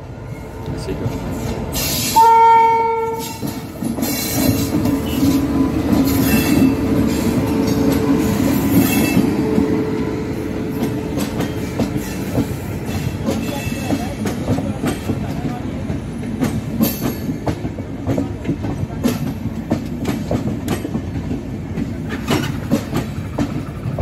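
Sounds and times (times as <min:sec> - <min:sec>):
train wheels clattering on rails: 0:00.8 - 0:24.0
locomotive horn: 0:02.2 - 0:03.4.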